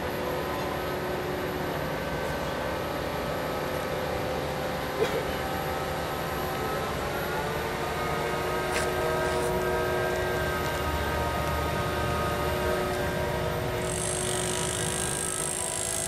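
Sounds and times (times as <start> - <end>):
crane engine humming: 0.0 - 16.0
whining tones: 7.2 - 16.0.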